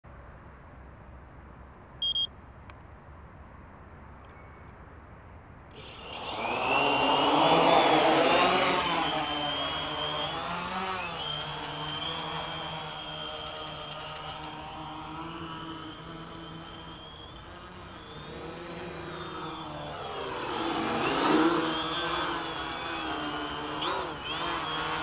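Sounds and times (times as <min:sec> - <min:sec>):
short electronic beep: 0:02.0 - 0:03.6
drone propellers whining: 0:05.8 - 0:25.0.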